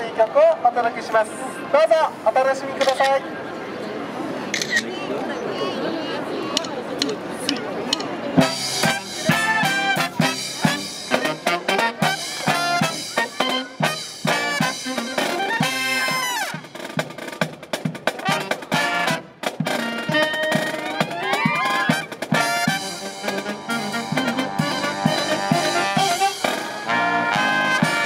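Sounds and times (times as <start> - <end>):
brass marching band playing: 8.4 - 28.0.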